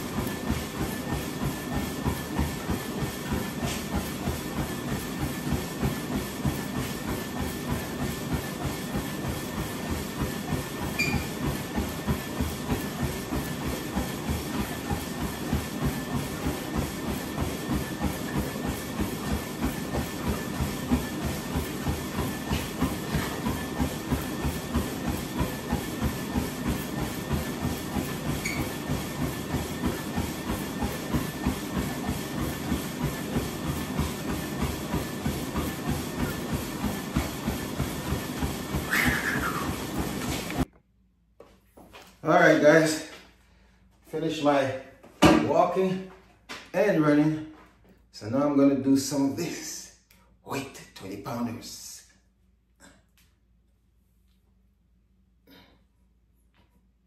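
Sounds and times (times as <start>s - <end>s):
footfalls on treadmill belt: 0.0s - 40.7s
treadmill whine: 0.0s - 57.0s.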